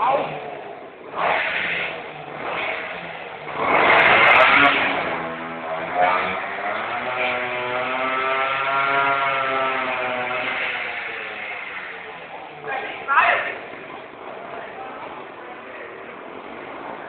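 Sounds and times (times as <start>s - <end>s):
moped engine revving: 0.0s - 17.0s.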